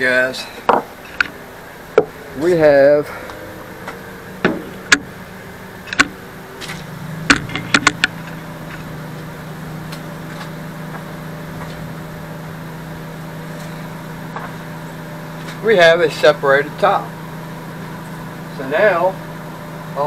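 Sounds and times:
steady engine-like hum: 0.0s - 20.0s
sharp knocks and clicks from handling: 5.9s - 8.9s.

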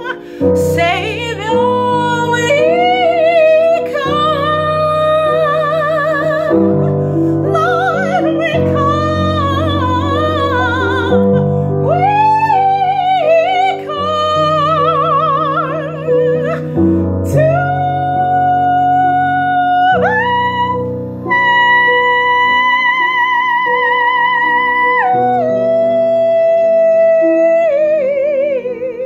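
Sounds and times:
piano chords: 0.0s - 29.0s
woman singing with vibrato: 0.0s - 29.0s.

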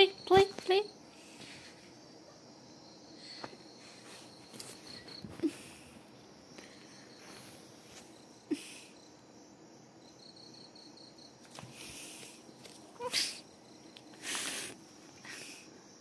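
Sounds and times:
faint high chirping: 0.0s - 9.3s.

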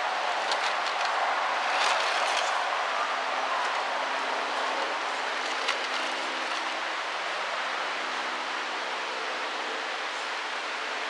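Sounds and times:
toy car clicking over rocks: 0.4s - 2.7s, 4.6s - 6.8s.

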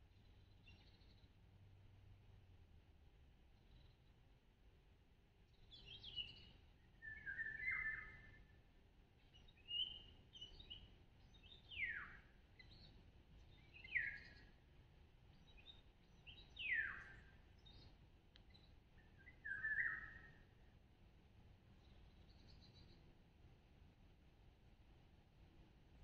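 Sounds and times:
songbirds calling: 0.1s - 1.4s, 5.5s - 8.6s, 9.2s - 20.7s, 21.7s - 23.2s.

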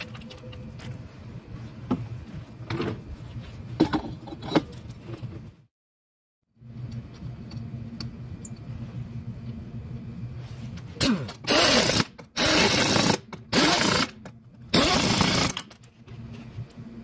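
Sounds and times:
steady low hum: 6.5s - 14.8s, 15.6s - 17.0s
impact wrench bursts: 11.0s - 15.7s.

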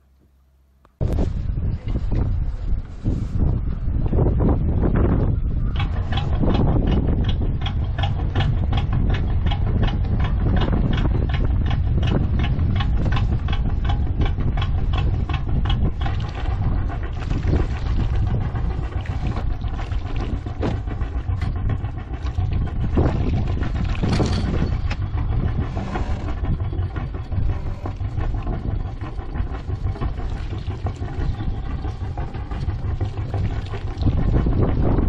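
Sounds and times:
boat engine idling: 0.1s - 35.0s.

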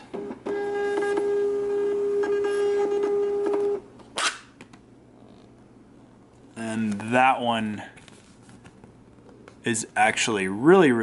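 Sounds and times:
printer motor whine: 0.0s - 3.8s.

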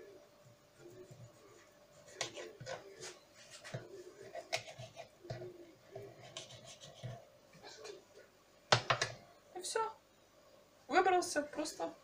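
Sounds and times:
faint steady hum: 0.0s - 12.0s
knife scraping cutting board: 2.0s - 8.0s.

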